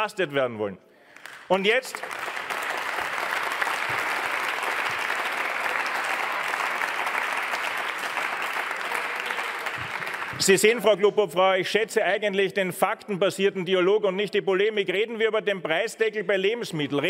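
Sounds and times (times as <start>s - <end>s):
crowd applauding: 1.2s - 10.9s.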